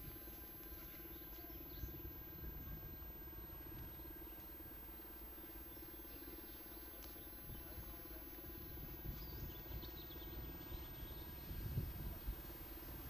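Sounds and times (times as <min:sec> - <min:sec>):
background hiss: 0:00.0 - 0:13.0
thin steady tones: 0:00.0 - 0:13.0.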